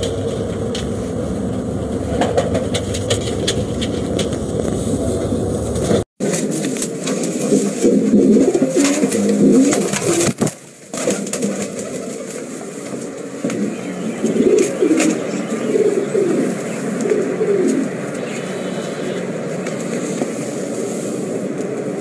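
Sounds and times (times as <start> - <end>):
pigeons cooing: 6.3 - 10.4, 11.0 - 21.8.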